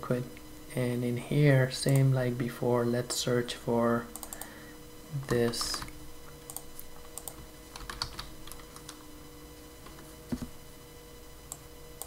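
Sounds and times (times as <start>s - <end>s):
keyboard keys clicking: 6.5s - 9.0s.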